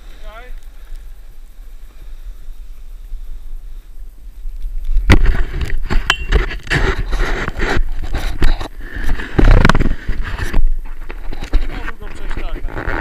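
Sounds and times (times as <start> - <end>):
wind on microphone: 1.0 - 13.0
ski edges scraping packed snow: 5.1 - 13.0.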